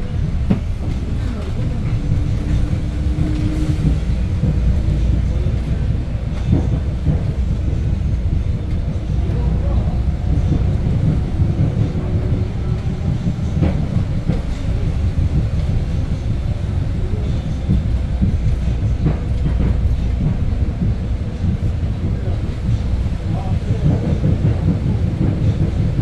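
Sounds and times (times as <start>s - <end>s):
bus engine and road rumble: 0.0s - 26.0s.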